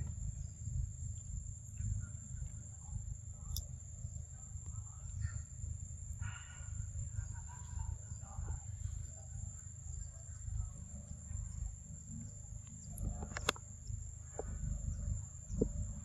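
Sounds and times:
low rumble: 8.1s - 16.0s
sharp clicks: 13.0s - 13.6s.

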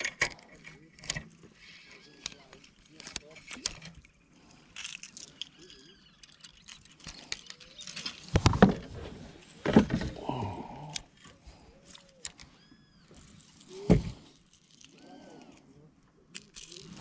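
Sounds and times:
fishing reel clicks and rattles: 4.7s - 8.2s.

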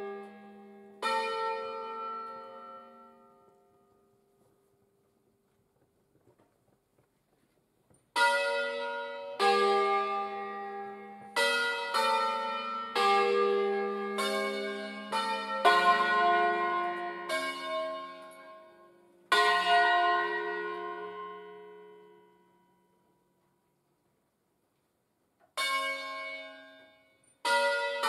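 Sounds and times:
church bells ringing: 0.0s - 4.6s, 8.1s - 23.3s, 25.5s - 28.0s.

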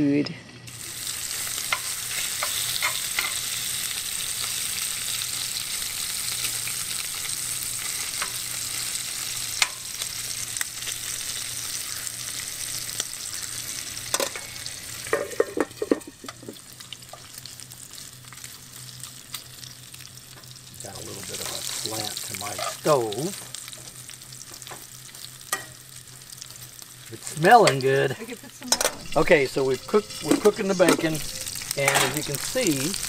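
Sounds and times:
bacon sizzling in a skillet: 0.0s - 33.0s.

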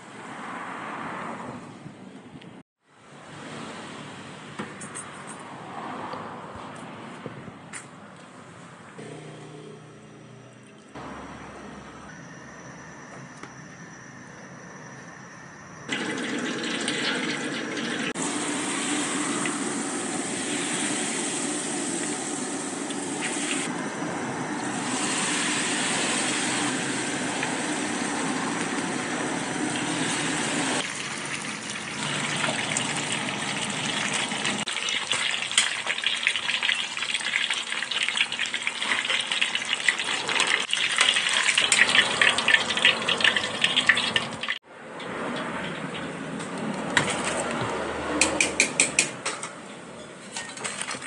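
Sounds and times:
chicken deep-frying in oil: 15.8s - 46.2s.

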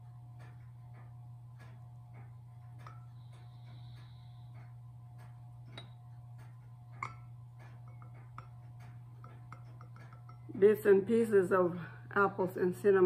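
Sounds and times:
clock ticking: 0.0s - 10.9s
low steady hum: 0.0s - 13.0s
porcelain teapot clink: 7.0s - 8.6s, 9.2s - 10.5s.

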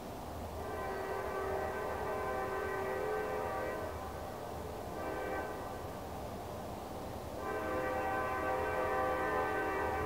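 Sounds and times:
locomotive horn blasts: 0.6s - 4.1s, 4.9s - 5.8s, 7.4s - 10.0s.

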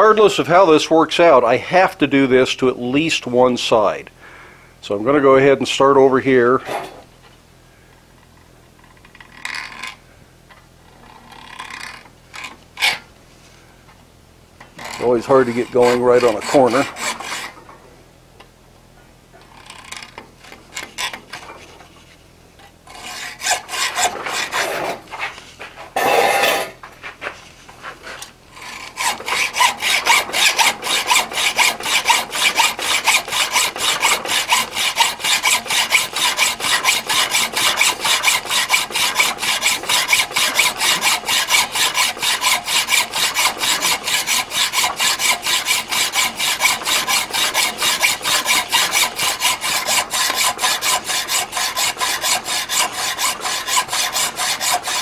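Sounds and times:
hacksaw sawing steel: 11.3s - 13.0s, 14.8s - 17.7s, 19.4s - 21.8s, 22.9s - 25.3s, 26.0s - 26.8s, 28.0s - 55.0s.

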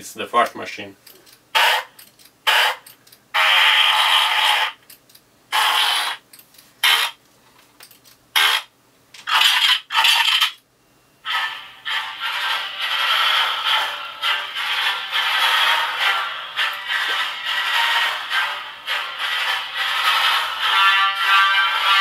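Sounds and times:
fart sound effects from speaker: 1.6s - 1.9s, 2.5s - 2.8s, 3.4s - 4.8s, 5.5s - 6.2s, 6.8s - 7.2s.

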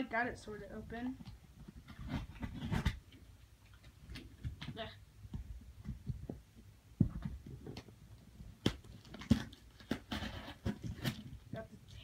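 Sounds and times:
package box handling clicks and thumps: 7.0s - 11.5s.

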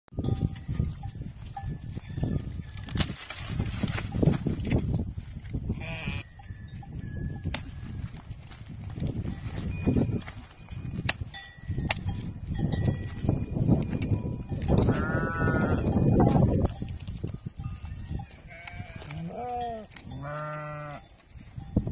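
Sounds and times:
goats and sheep bleating: 5.7s - 6.4s, 14.7s - 16.4s, 18.2s - 21.2s
machete chopping cactus: 11.0s - 12.1s.

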